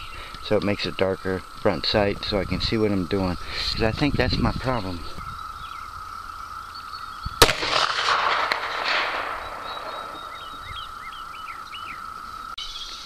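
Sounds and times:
revolver shot with echo: 0:07.4 - 0:10.6.

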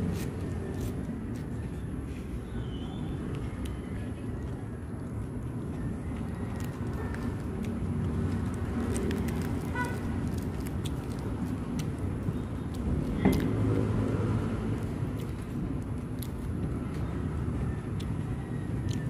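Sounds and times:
low outdoor rumble: 0:00.0 - 0:19.0
lettuce leaves tearing and chewing: 0:05.4 - 0:17.2, 0:17.8 - 0:19.0.

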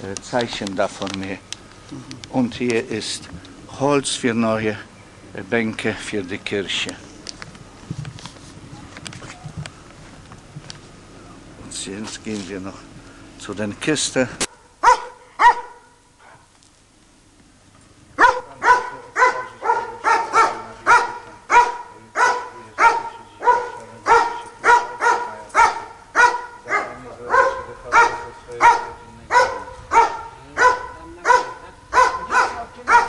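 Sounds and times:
dog barking: 0:14.8 - 0:16.4, 0:18.2 - 0:33.0.

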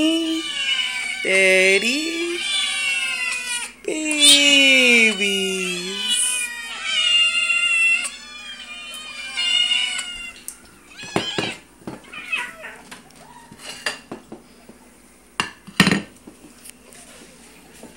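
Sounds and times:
cats and kittens meowing: 0:00.0 - 0:14.0.

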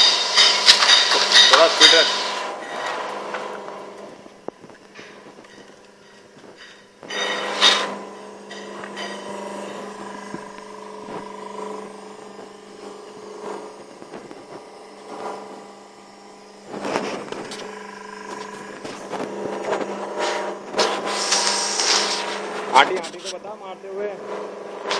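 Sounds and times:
loud metallic clatter: 0:00.0 - 0:03.1, 0:06.6 - 0:11.9
hydraulic power unit humming: 0:00.0 - 0:24.9.

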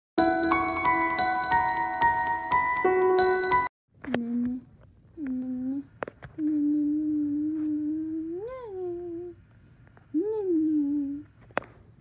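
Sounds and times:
person humming: 0:04.1 - 0:09.4, 0:10.1 - 0:11.3.

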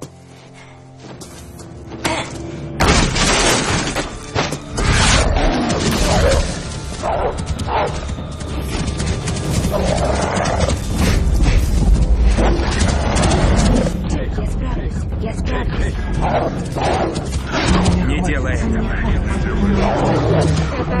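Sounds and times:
dramatic film music: 0:00.0 - 0:21.0.

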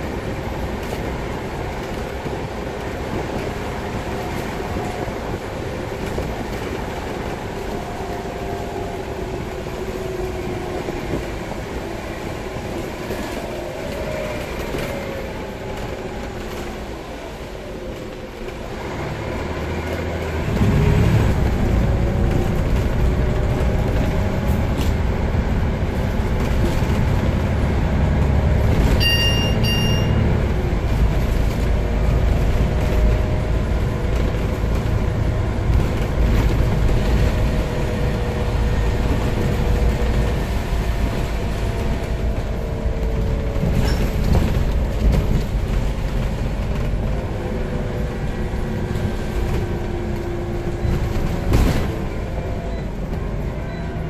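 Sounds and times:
bus engine rumble: 0:00.0 - 0:54.0
road noise: 0:00.0 - 0:54.0
double electronic beep: 0:29.0 - 0:30.3.

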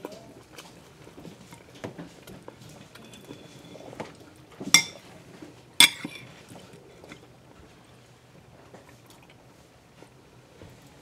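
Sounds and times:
fork clinking on plate: 0:04.8 - 0:05.0, 0:05.8 - 0:06.3.

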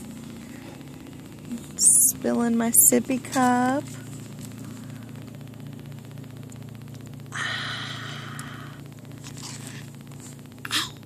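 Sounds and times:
breathy hiss: 0:07.3 - 0:08.9.

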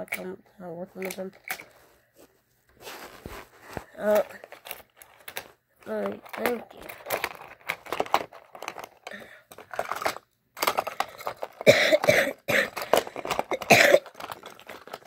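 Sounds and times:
plastic toy cars clicking: 0:00.0 - 0:00.3, 0:01.0 - 0:01.8, 0:04.0 - 0:15.0
person coughing: 0:11.6 - 0:14.2.

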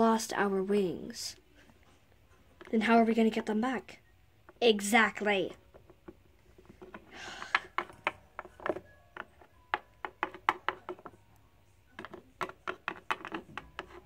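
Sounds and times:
plastic figurines tapping on table: 0:05.6 - 0:11.2, 0:11.9 - 0:14.0.

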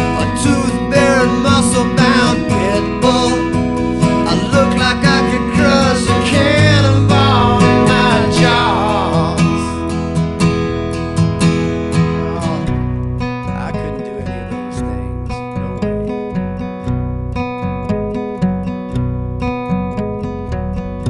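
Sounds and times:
man singing: 0:00.0 - 0:09.9, 0:12.0 - 0:15.9
acoustic guitar strumming: 0:00.0 - 0:21.0.

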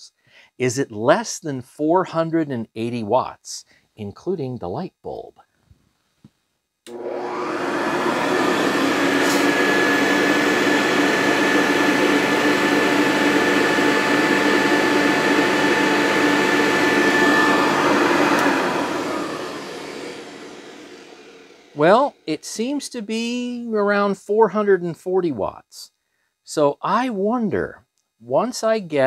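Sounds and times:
vacuum cleaner motor whining: 0:06.9 - 0:22.4.

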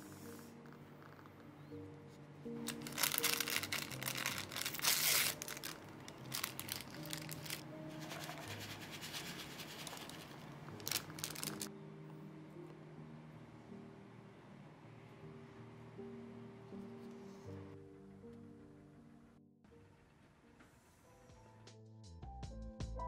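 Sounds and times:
soft background music: 0:00.0 - 0:23.0
paper rustling and crinkling: 0:02.6 - 0:11.7.

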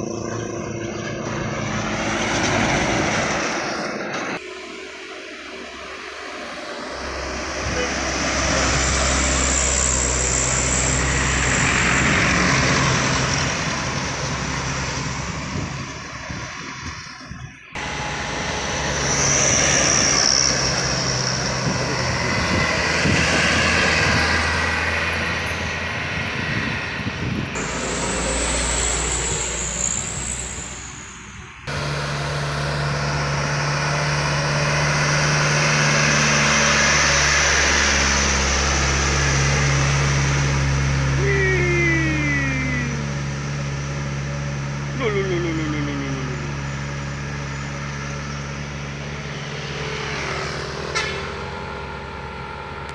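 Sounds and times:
diesel trucks driving past: 0:00.0 - 0:52.9
high whine: 0:03.3 - 0:22.7, 0:24.8 - 0:33.6, 0:41.1 - 0:43.5.

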